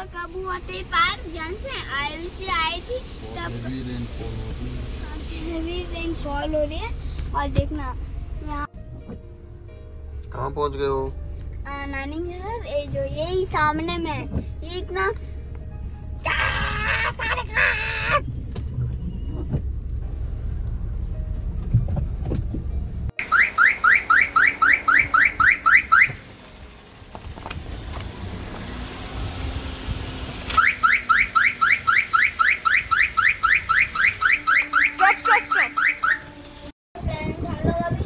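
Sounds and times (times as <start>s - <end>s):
engine and road rumble: 0.0s - 38.0s
car alarm rising chirps: 18.2s - 19.8s, 23.2s - 26.9s, 30.5s - 36.6s.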